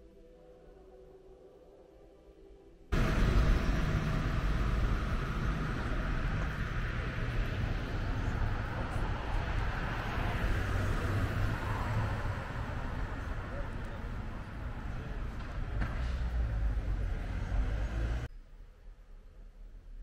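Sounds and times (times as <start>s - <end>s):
traffic rumble with hiss: 2.9s - 18.3s.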